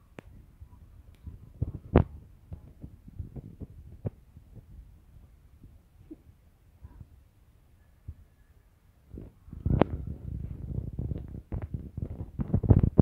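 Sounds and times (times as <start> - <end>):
low thumps on microphone: 1.2 - 4.8, 9.1 - 13.0.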